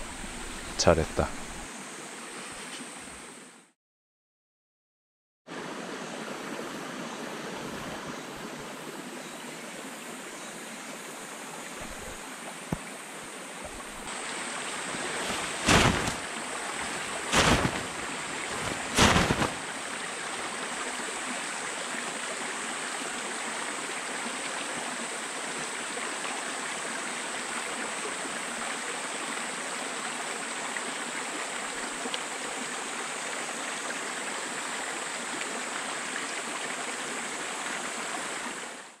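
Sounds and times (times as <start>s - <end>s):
stream water running: 0.0s - 3.6s, 5.5s - 39.0s
high buzz of insects: 8.7s - 21.2s
short loud noises: 15.0s - 19.7s.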